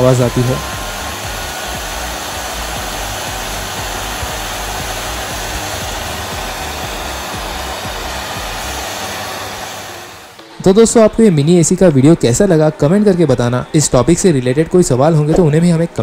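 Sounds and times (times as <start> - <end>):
humidifier fan rushing air: 0.0 - 10.4.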